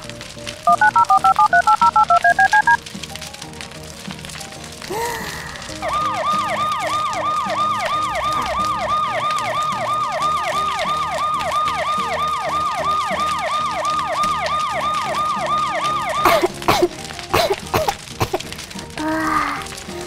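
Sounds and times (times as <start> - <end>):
fire engine siren yelping: 0.7 - 2.8, 5.5 - 17.0
sharp clicks: 0.7 - 3.0.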